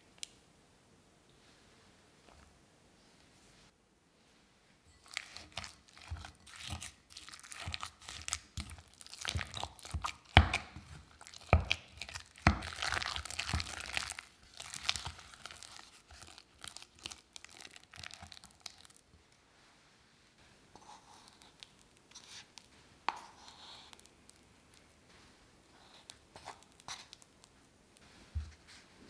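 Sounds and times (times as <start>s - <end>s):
spatula stirring paste in bowl: 4.9s - 19.0s, 20.7s - 28.9s.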